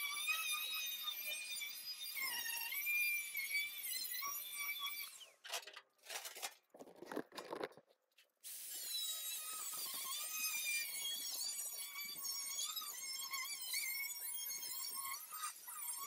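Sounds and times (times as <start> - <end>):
scraping and knocks: 5.6 - 8.0
angle grinder cutting steel: 8.5 - 16.0.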